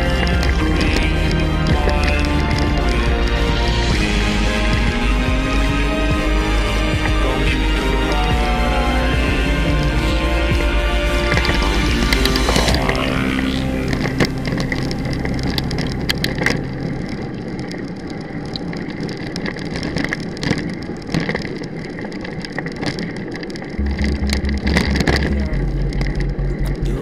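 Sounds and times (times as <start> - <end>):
music with heavy bass beat: 0.0 - 16.6, 23.8 - 27.0
bike tyres crunching on gravel: 0.0 - 27.0.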